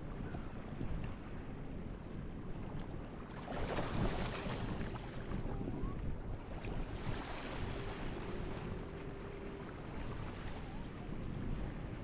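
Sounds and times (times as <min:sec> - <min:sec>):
small waves breaking: 0:02.6 - 0:12.0.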